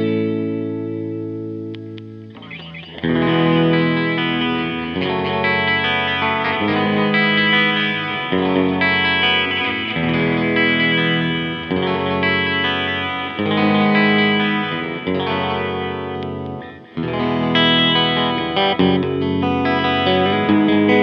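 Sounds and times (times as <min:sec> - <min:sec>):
clean electric guitar with echo: 0:00.0 - 0:21.0.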